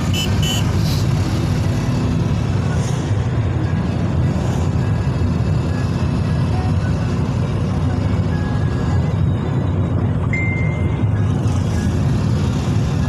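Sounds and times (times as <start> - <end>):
vehicle road and engine rumble: 0.0 - 13.0
short high beeps: 10.3 - 11.2.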